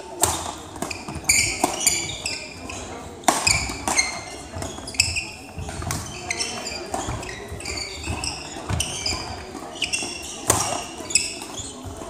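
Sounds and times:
shoes squeaking on hall floor: 0:00.0 - 0:12.0
racket hitting shuttlecock: 0:00.2 - 0:11.7.

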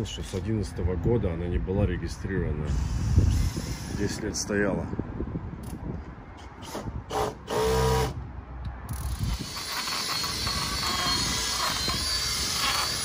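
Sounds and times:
drill polishing pad whirring: 0:09.4 - 0:13.0.

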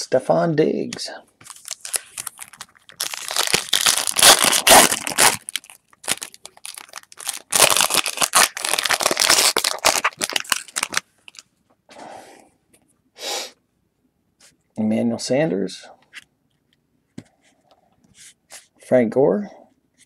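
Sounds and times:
foil wrapper crinkling: 0:01.4 - 0:11.5.

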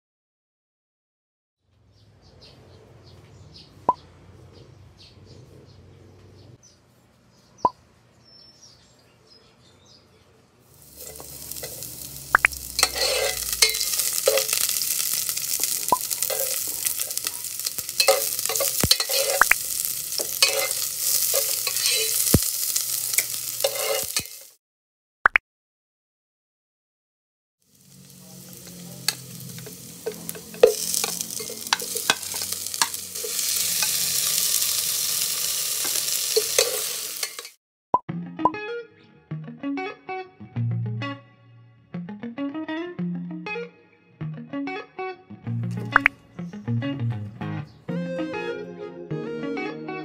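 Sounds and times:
onion and garlic sizzling: 0:10.6 - 0:24.6, 0:27.6 - 0:37.6, 0:45.6 - 0:46.1.

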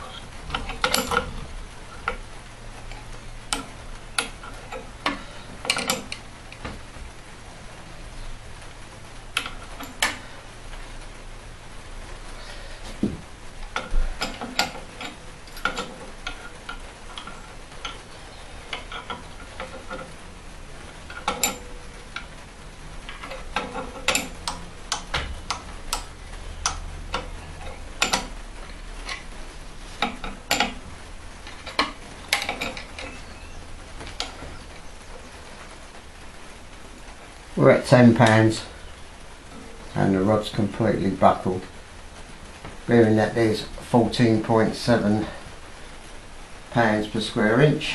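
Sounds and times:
low steady hum: 0:00.0 - 0:47.9
metallic clicks and taps: 0:30.0 - 0:30.8.

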